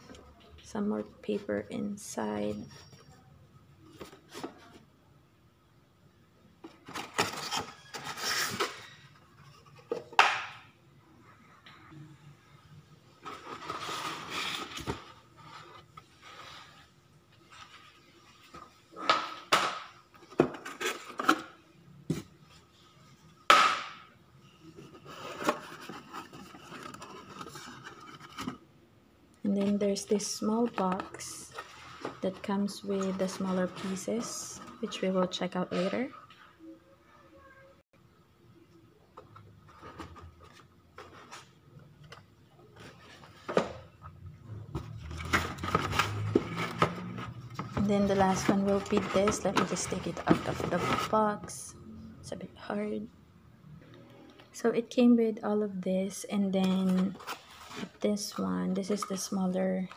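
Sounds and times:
cardboard knocking and scraping: 0:44.7 - 0:51.2.

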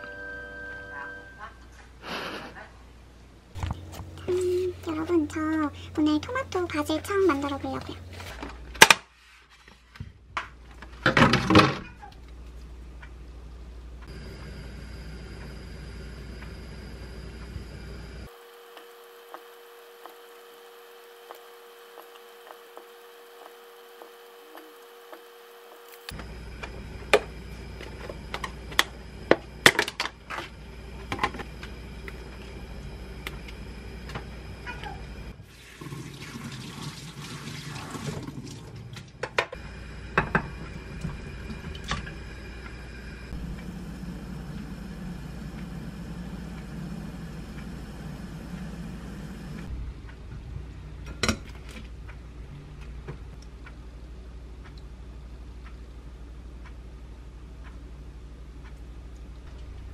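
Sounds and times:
steady low hum: 0:00.2 - 0:08.8, 0:12.2 - 0:35.5, 0:39.0 - 0:59.9
water running from sink tap: 0:35.4 - 0:38.9.

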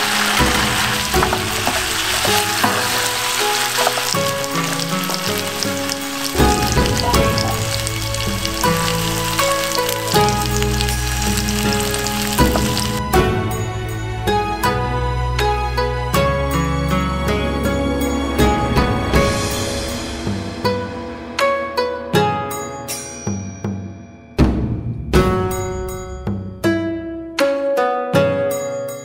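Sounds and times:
shrimp sizzling in a pan: 0:00.0 - 0:13.0
stirring clicks: 0:00.0 - 0:13.0
soft background music: 0:00.0 - 0:23.2.

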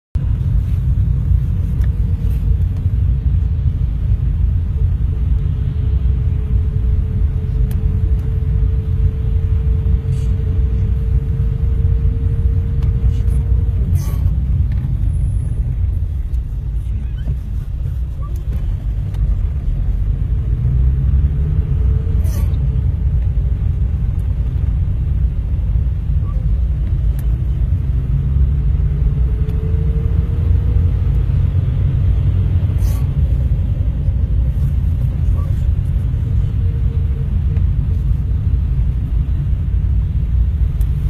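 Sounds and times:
car road noise rumble: 0:00.2 - 0:41.0.

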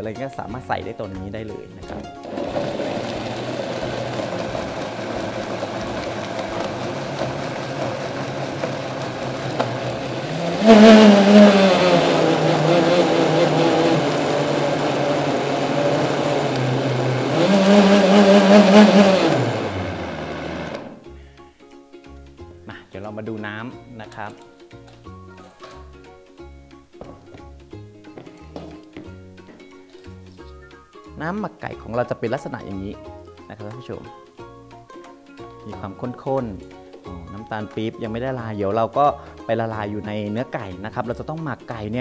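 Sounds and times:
blender motor running: 0:02.2 - 0:21.0.

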